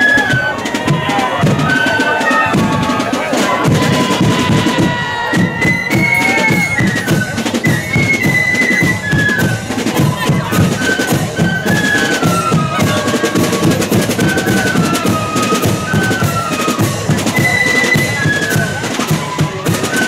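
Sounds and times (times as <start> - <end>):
bass drum beating: 0.0 - 6.2
flute melody: 0.0 - 20.0
snare drums: 0.0 - 20.0.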